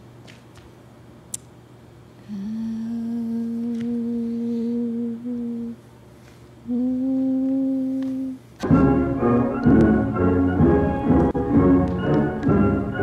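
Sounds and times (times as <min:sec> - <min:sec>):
person humming a held note: 0:02.2 - 0:05.8, 0:06.6 - 0:08.5.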